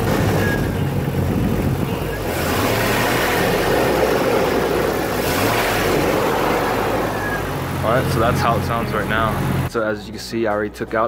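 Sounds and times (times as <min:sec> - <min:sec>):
car engine idling and revving: 0:00.0 - 0:09.7.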